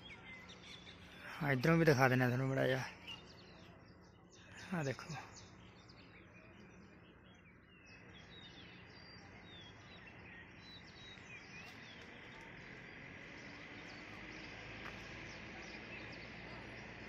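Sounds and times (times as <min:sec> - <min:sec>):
distant birds chirping: 0:00.0 - 0:17.0.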